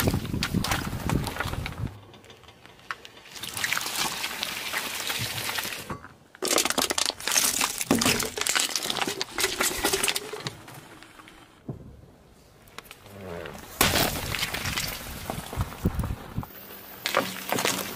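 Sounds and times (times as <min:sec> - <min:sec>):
tyre crushing aluminium cans: 0:05.3 - 0:10.9, 0:17.0 - 0:17.9.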